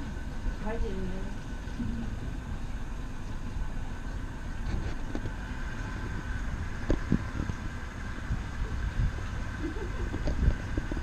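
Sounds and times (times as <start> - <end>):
boat engine rumbling: 0.0 - 11.0
faint engine whine: 0.0 - 11.0.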